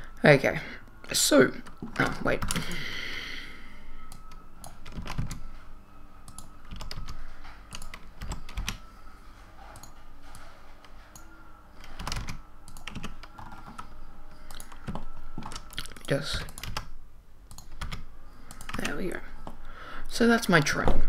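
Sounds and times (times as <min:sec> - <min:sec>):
computer keyboard keys tapping: 0:01.6 - 0:02.8, 0:04.1 - 0:05.5, 0:06.2 - 0:08.9, 0:09.7 - 0:19.6.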